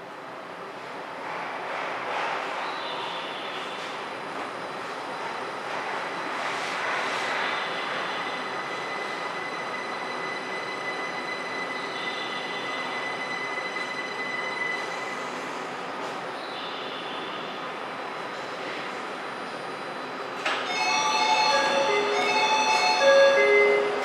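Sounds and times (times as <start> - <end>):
maglev train humming: 7.6 - 24.0.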